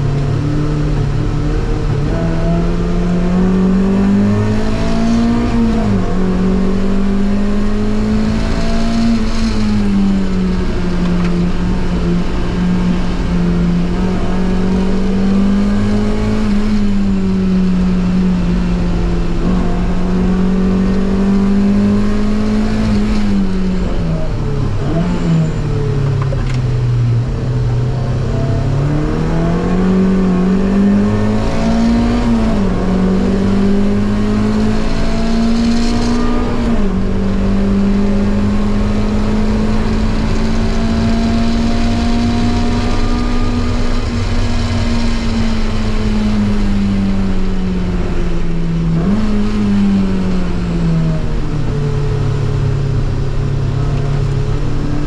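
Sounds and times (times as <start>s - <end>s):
car engine running hard: 0.0s - 55.0s.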